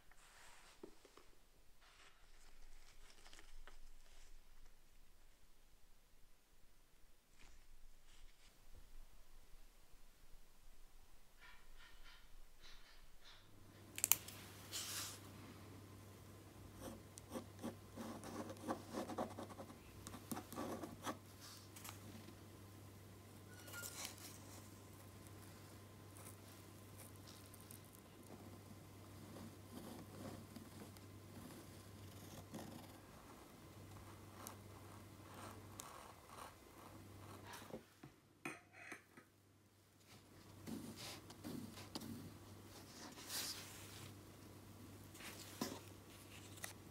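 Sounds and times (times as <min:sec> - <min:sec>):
pen scratching on paper: 0:16.8 - 0:21.2, 0:28.2 - 0:33.0, 0:34.0 - 0:37.7.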